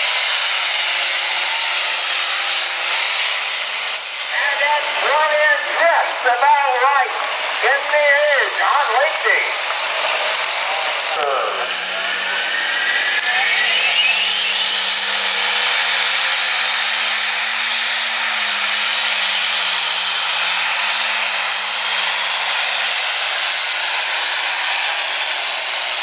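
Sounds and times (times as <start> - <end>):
diesel tractor engine at full throttle: 0.0 - 26.0
turbo whine rising in pitch: 7.2 - 26.0.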